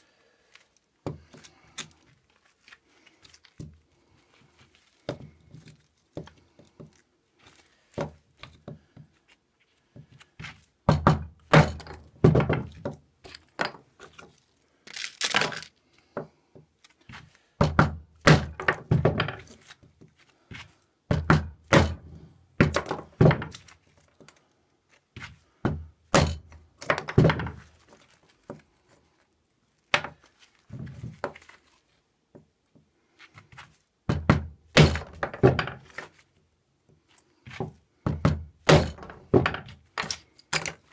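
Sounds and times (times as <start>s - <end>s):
knife chopping wood: 10.4s - 13.0s, 17.1s - 19.6s, 21.1s - 23.7s, 25.2s - 27.6s, 34.1s - 36.1s, 37.5s - 40.8s.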